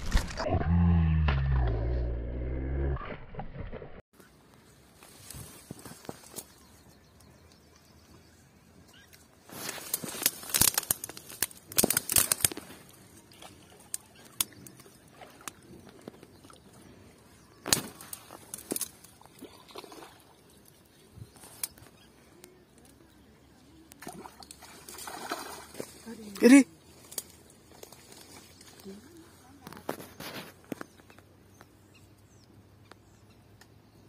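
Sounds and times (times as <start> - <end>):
fish splashing in water: 24.0 - 26.4.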